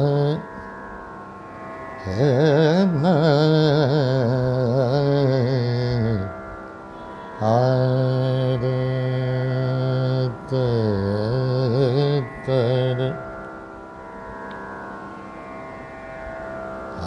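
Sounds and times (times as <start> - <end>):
man singing ornamented phrase: 0.0 - 0.5, 2.0 - 6.4, 7.4 - 13.4
steady drone: 0.0 - 17.0.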